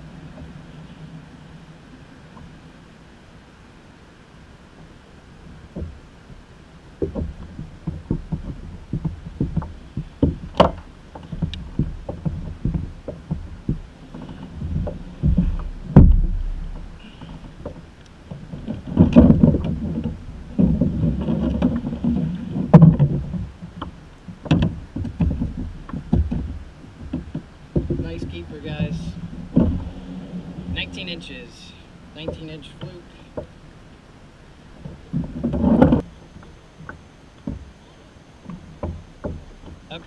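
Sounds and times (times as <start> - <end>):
heavy thump: 7.0 - 23.5, 24.5 - 31.5
gear knocking against plastic kayak: 7.0 - 31.5, 34.7 - 40.0.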